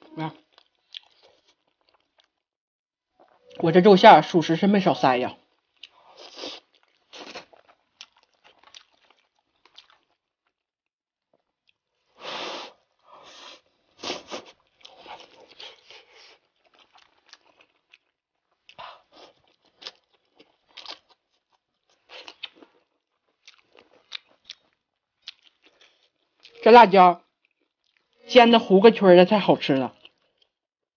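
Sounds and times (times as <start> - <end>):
close chewing with mouth clicks: 0.3 - 2.5, 5.5 - 10.6, 11.3 - 26.6, 27.2 - 28.2, 29.9 - 30.6.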